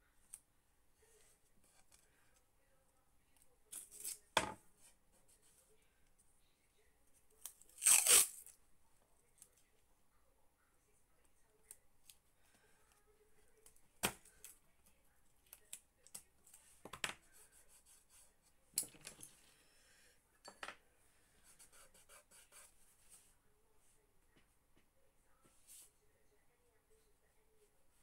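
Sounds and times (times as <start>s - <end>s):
tape rubbed onto paper: 7.8s - 8.4s.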